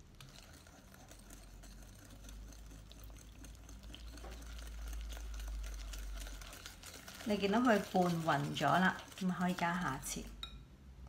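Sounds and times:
whisk scraping in glass bowl: 0:00.0 - 0:10.5.

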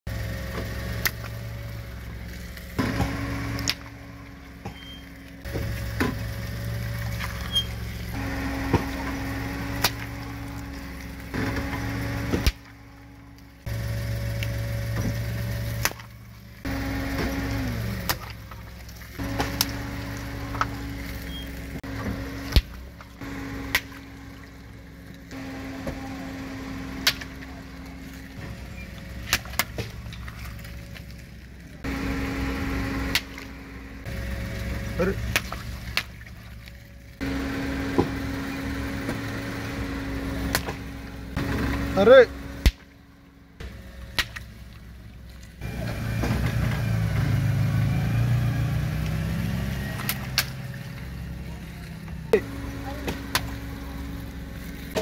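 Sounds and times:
car engine idling: 0:00.0 - 0:55.0
water balloons popping: 0:04.6 - 0:13.0, 0:14.3 - 0:24.4, 0:26.8 - 0:31.1, 0:32.9 - 0:33.6, 0:35.0 - 0:36.5, 0:42.6 - 0:43.0.

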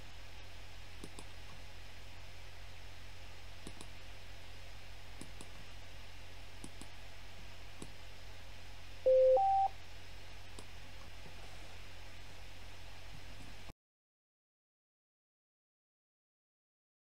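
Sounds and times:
low steady hum: 0:00.0 - 0:13.7
faint mouse clicks: 0:01.0 - 0:01.6, 0:03.6 - 0:04.0, 0:05.2 - 0:05.6, 0:06.6 - 0:06.9
two-note electronic beep: 0:09.1 - 0:09.7.

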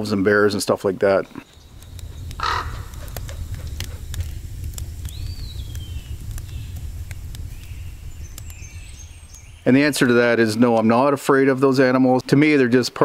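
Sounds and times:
low forest rumble: 0:00.0 - 0:12.0
thin bird call: 0:01.3 - 0:04.0
faint clicks: 0:01.3 - 0:09.6
faint high chirps: 0:05.0 - 0:10.4.

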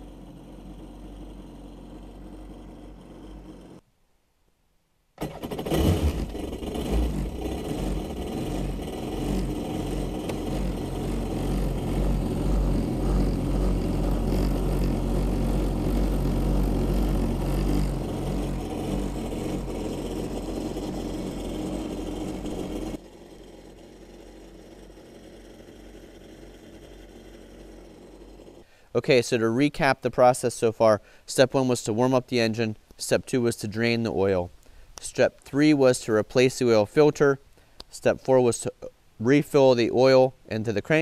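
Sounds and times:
watercraft engine running: 0:00.0 - 0:03.8, 0:05.2 - 0:28.6.

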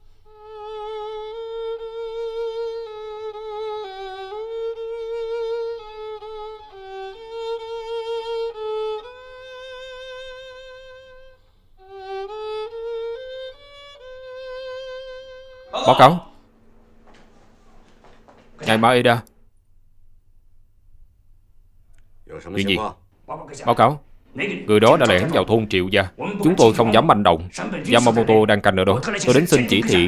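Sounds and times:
solo violin melody: 0:00.2 - 0:15.7.

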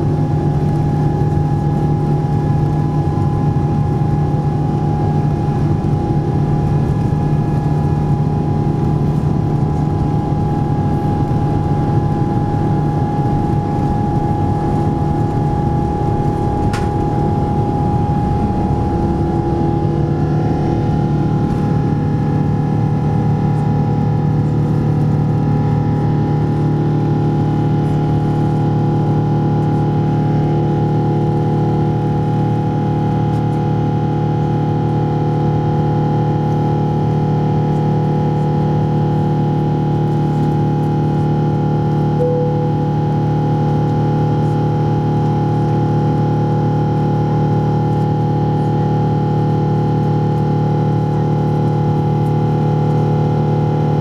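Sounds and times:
jet engine drone in cabin: 0:00.0 - 0:54.0
runway rumble: 0:05.1 - 0:25.9.

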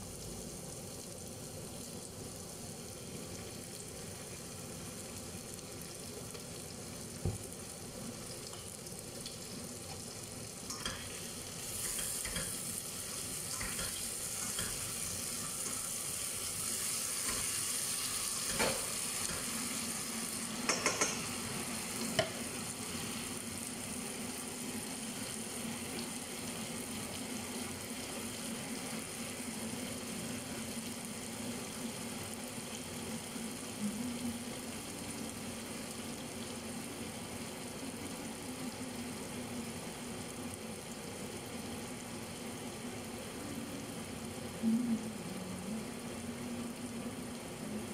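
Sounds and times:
liver sizzling in a pan: 0:00.0 - 0:47.9
spatula knocking on metal pan: 0:20.7 - 0:21.2.

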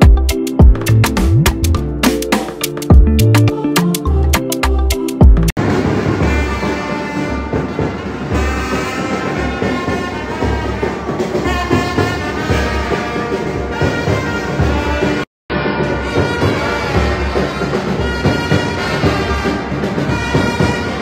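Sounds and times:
heavy drum beats: 0:00.0 - 0:21.0
horns playing a melody: 0:05.6 - 0:21.0.

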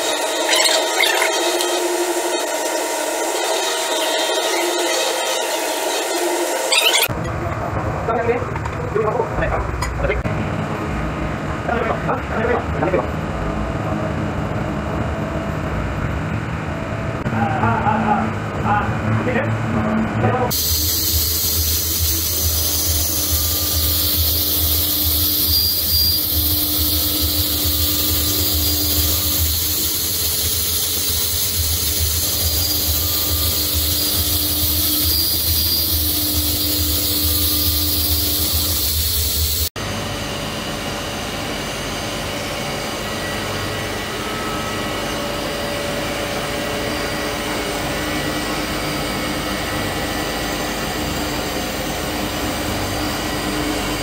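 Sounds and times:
milling machine cutting metal: 0:00.0 - 0:07.1, 0:20.5 - 0:39.7
high hiss: 0:20.5 - 0:39.7.

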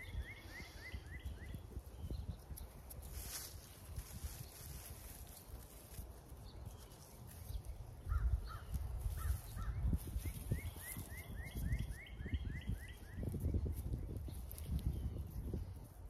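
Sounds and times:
bird chirping: 0:00.0 - 0:03.4, 0:06.3 - 0:15.6.

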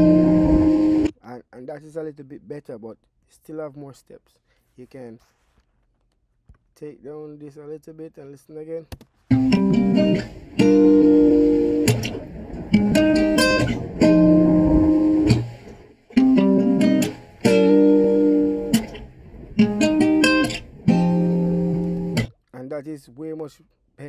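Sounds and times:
plucked guitar notes and chords: 0:00.0 - 0:01.1, 0:09.3 - 0:22.3
background hiss: 0:00.0 - 0:05.7, 0:08.3 - 0:22.3.

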